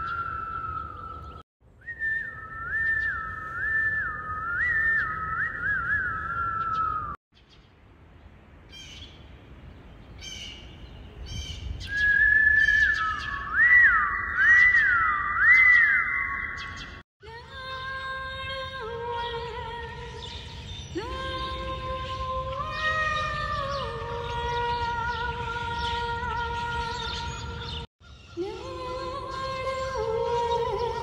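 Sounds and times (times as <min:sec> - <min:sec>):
person whistling: 0:01.9 - 0:06.6
small birds chirping: 0:06.1 - 0:17.0, 0:20.0 - 0:28.5.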